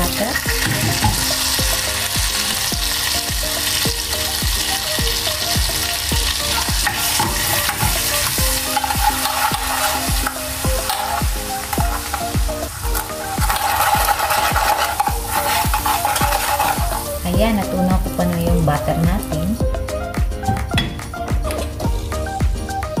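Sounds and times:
spatula stirring: 0.0 - 3.2, 5.4 - 18.1
butter sizzling in saucepan: 0.0 - 19.6
low thumping beat: 0.0 - 23.0.

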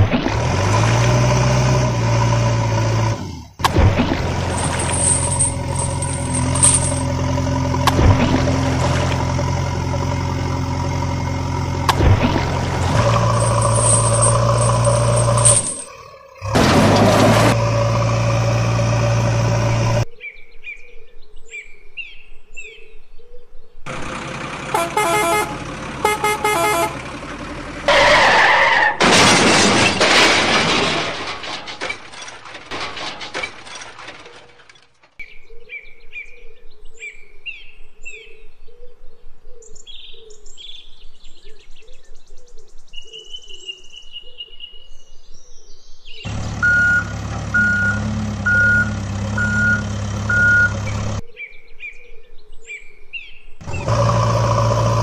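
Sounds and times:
engine running: 0.2 - 20.0, 23.9 - 28.0, 46.3 - 51.2, 53.6 - 55.0
horn honks: 24.7 - 27.0.

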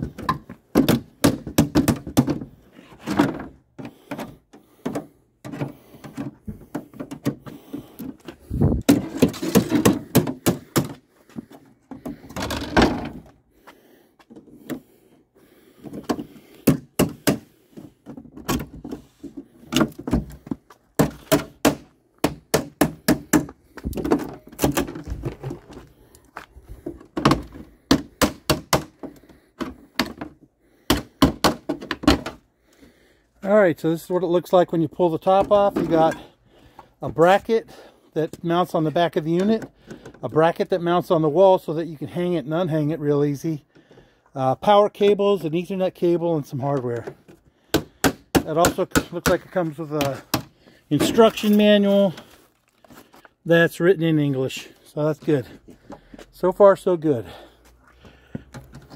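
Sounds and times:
clattering and scraping: 0.0 - 13.5, 23.8 - 27.9.

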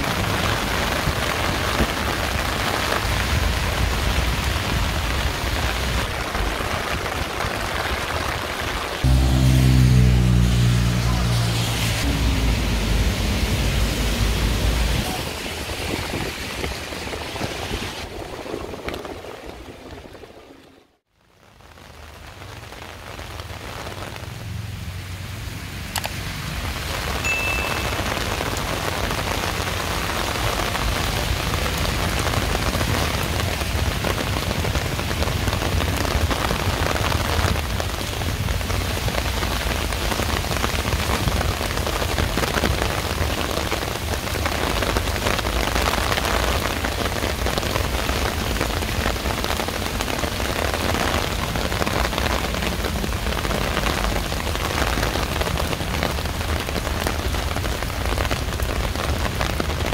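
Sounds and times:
heavy rain pouring: 0.0 - 59.9
low rumble: 9.0 - 16.6.

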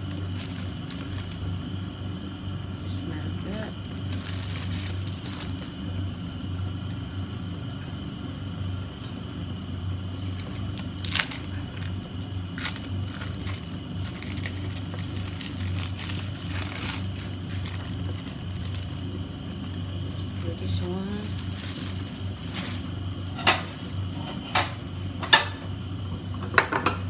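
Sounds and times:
plastic bag crinkling: 0.0 - 1.5, 3.5 - 5.9, 10.0 - 24.0.

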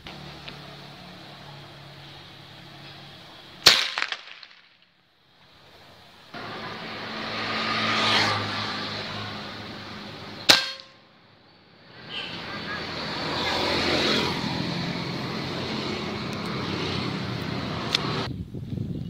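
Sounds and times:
background noise: 0.0 - 14.7
air rifle shots: 3.6 - 4.8, 10.4 - 10.9.

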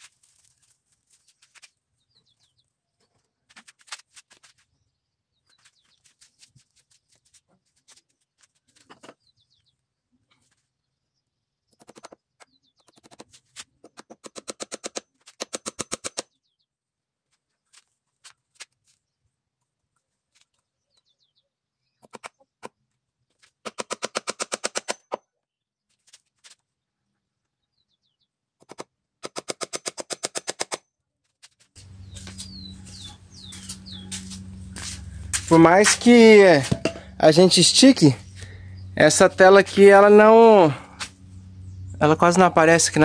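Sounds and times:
small birds chirping: 0.4 - 3.8, 4.4 - 14.3, 16.0 - 16.8, 18.8 - 23.4, 26.7 - 28.8, 31.8 - 43.0
steady low hum: 31.8 - 43.0.

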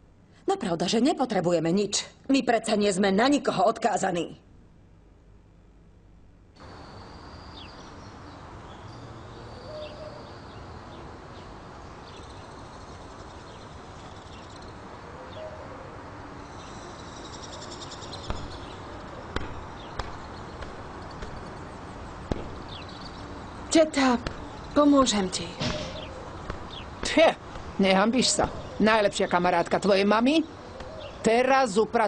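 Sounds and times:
steady background hiss: 0.0 - 32.0
small birds chirping: 6.6 - 15.8, 16.4 - 32.0
sharp knocks: 18.2 - 23.2, 25.5 - 27.8.

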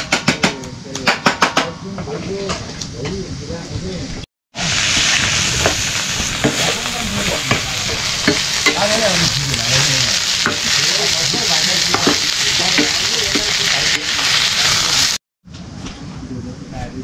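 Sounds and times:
greens sizzling in a pan: 4.6 - 15.2.

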